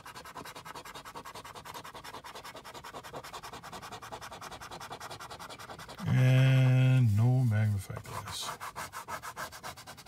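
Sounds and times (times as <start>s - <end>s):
coin scratching a ticket: 0.0s - 10.0s.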